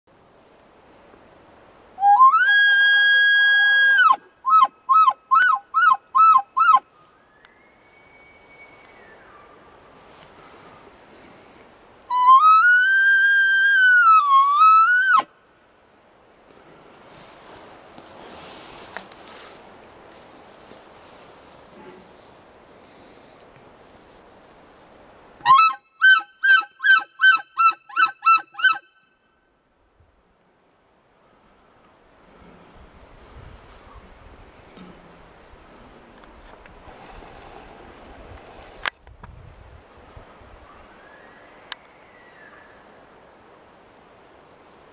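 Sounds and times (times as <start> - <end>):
elk call whistle and chirps: 2.0 - 9.5, 12.1 - 15.3, 25.4 - 29.2
faint falling whistle: 7.2 - 9.6, 41.0 - 42.8.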